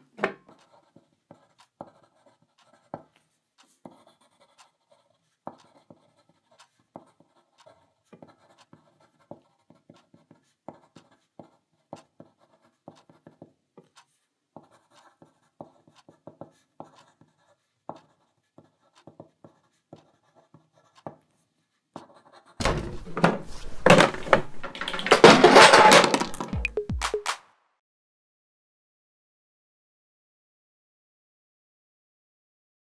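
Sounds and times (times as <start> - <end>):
pencil tapping and scratching on paper: 0.1 - 25.6
chair and desk crashing over: 22.6 - 26.7.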